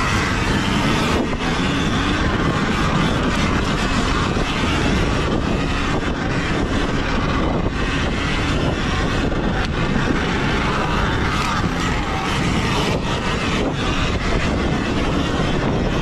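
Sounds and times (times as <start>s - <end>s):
wind rushing on microphone: 0.0s - 16.0s.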